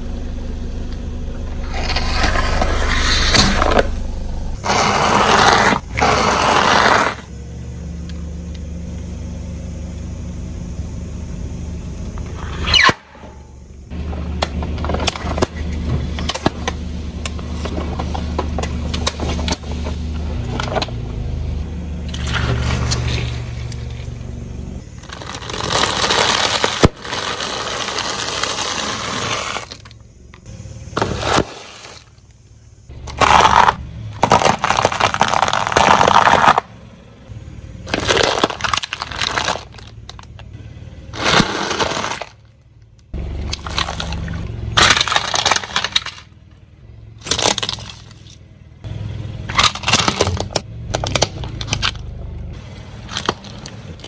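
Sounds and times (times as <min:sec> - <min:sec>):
car engine running: 0:00.0 - 0:54.0
tyre crushing objects: 0:04.6 - 0:07.3, 0:25.0 - 0:29.9, 0:31.0 - 0:32.2, 0:33.1 - 0:36.7, 0:37.9 - 0:40.3, 0:41.2 - 0:42.4, 0:43.5 - 0:46.3, 0:53.0 - 0:54.0.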